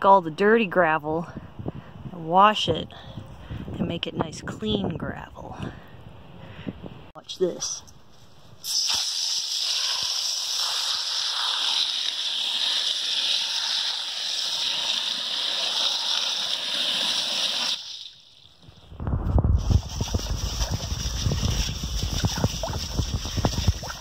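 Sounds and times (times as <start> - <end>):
hose water jetting into metal bowl: 8.6 - 18.5, 19.6 - 24.0.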